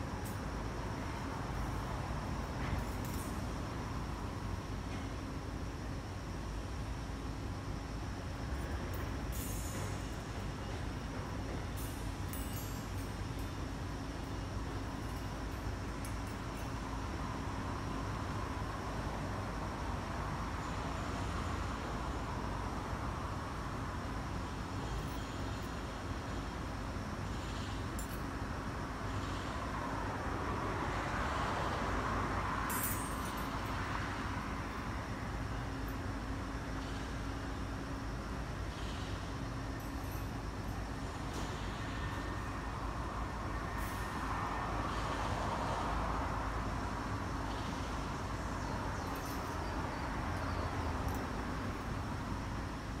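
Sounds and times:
road traffic noise: 0.0 - 53.0
street rumble with hiss: 0.0 - 53.0.

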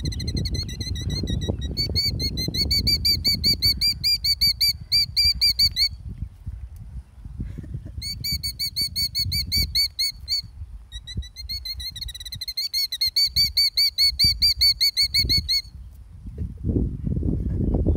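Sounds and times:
killdeer alarm calls: 0.0 - 6.0, 8.0 - 15.7.

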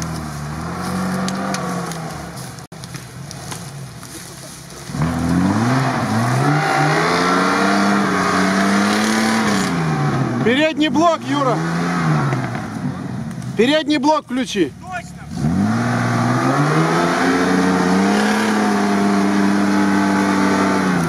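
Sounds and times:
car engine revving: 0.0 - 2.4, 4.8 - 13.5, 15.0 - 21.0.

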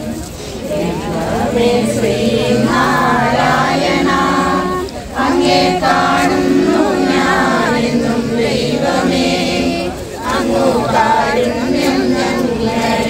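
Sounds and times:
group singing unaccompanied: 0.0 - 13.0.

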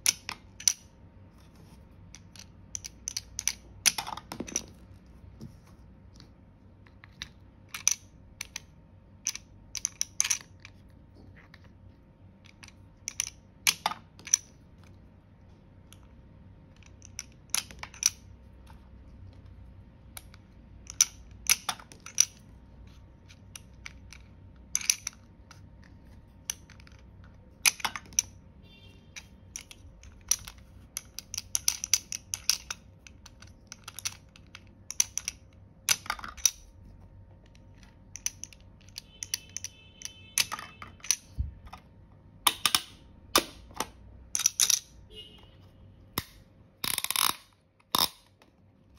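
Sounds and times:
hard plastic toy clicks: 46.2 - 48.3.

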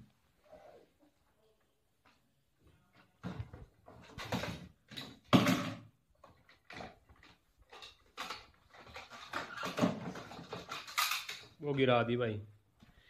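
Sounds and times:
plastic toy handling noise: 3.2 - 11.9.

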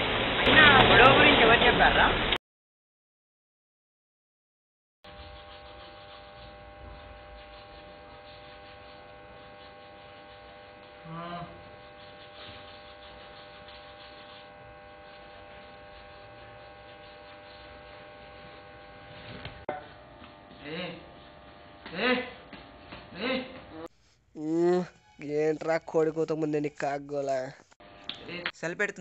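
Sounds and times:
steady electrical hum: 5.1 - 29.0.

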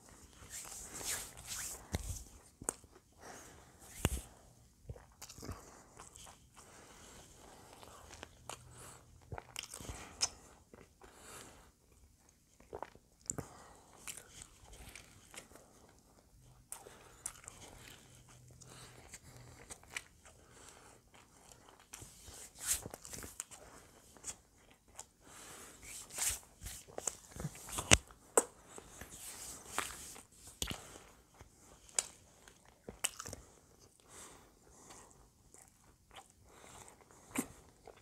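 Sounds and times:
biting and chewing hamburger: 7.7 - 11.0, 26.7 - 34.1.

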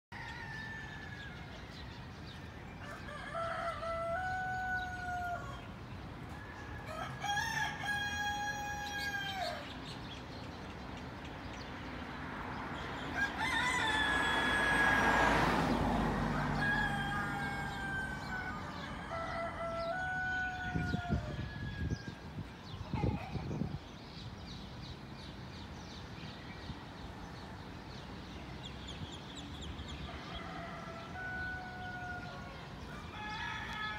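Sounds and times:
rooster crowing: 0.1 - 1.9, 2.8 - 5.7, 6.3 - 9.7, 13.1 - 22.2, 30.1 - 33.9.

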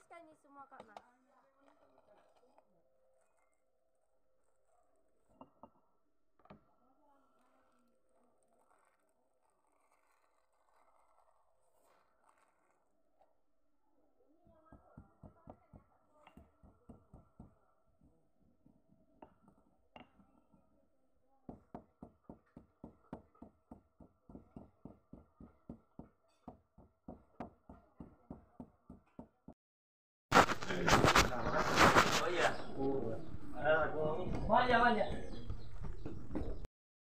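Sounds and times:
pestle pounding in stone mortar: 21.5 - 29.6.

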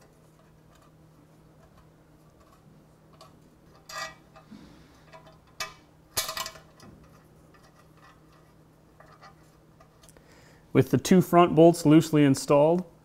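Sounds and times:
bolts clinking against metal plate: 2.4 - 4.5, 5.1 - 8.4.

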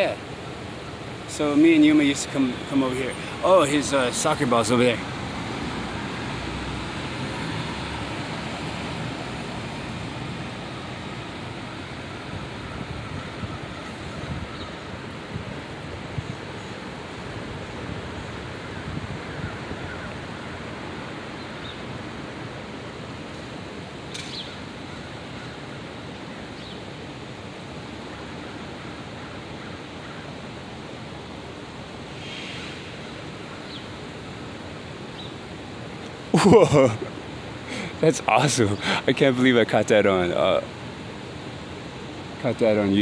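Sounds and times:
outdoor hiss: 0.0 - 43.0.

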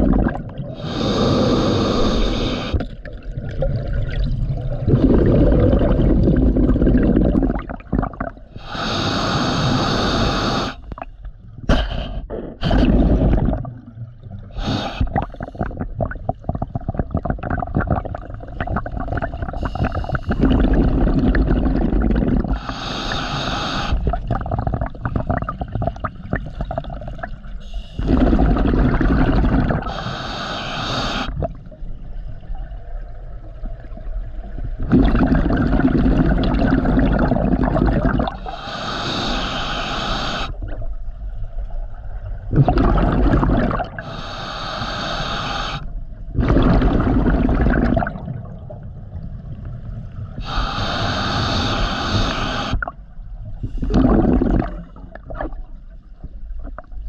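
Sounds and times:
bubbling exhale: 0.0 - 11.0, 11.7 - 13.8, 14.4 - 31.6, 34.8 - 40.7, 42.5 - 48.7, 50.3 - 53.0, 53.6 - 55.6
diver breathing through regulator: 0.7 - 2.8, 8.6 - 10.8, 11.7 - 13.6, 14.6 - 15.7, 19.6 - 24.2, 27.6 - 31.4, 38.3 - 40.6, 44.0 - 47.1, 50.4 - 52.9.

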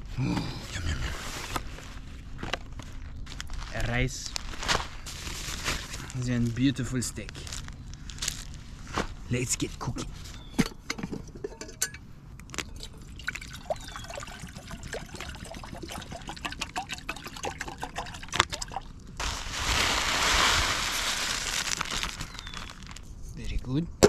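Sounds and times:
wood fire crackling: 18.7 - 23.1
loud steady hiss: 19.2 - 22.8.

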